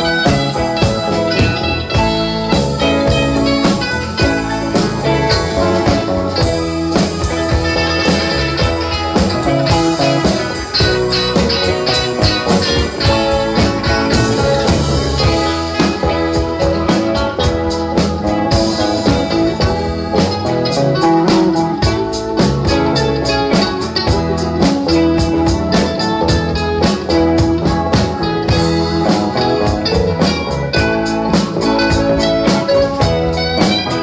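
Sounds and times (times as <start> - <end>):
drum kit: 0.0 - 34.0
electric bass: 0.0 - 34.0
electric guitars: 0.0 - 34.0
electric keyboard: 0.0 - 34.0.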